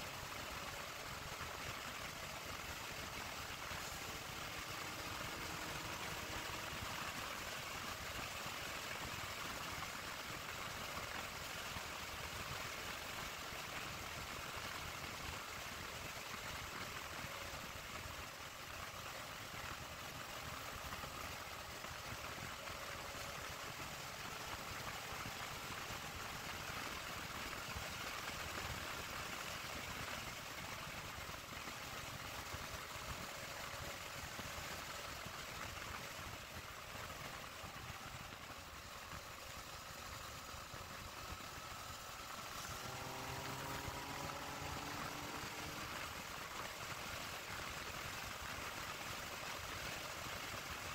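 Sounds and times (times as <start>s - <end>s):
motorcycle engine accelerating: 3.7s - 7.4s, 42.3s - 46.4s.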